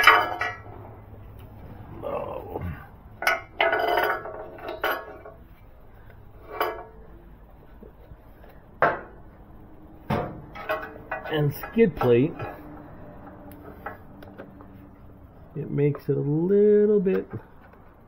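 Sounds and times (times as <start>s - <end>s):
metallic clinks and knocks: 0.0s - 1.0s, 3.2s - 5.5s, 10.1s - 14.8s.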